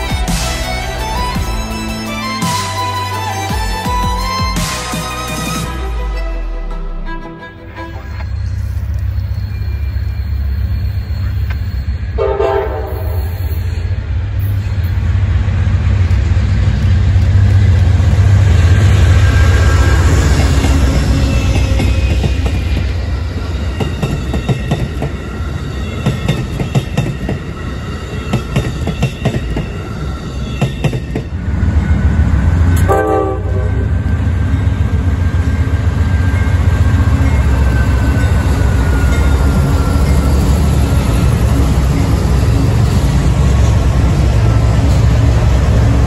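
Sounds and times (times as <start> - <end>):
diesel locomotive rumble: 0.0 - 46.0
train horn blast: 12.2 - 13.4, 32.8 - 34.1
train wheels clicking over joints: 15.9 - 29.9.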